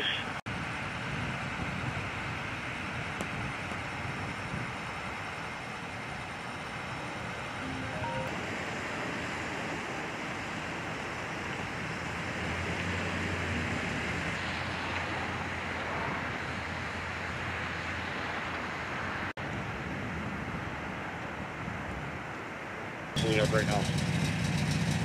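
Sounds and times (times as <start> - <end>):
rushing outdoor noise: 0.0 - 25.0.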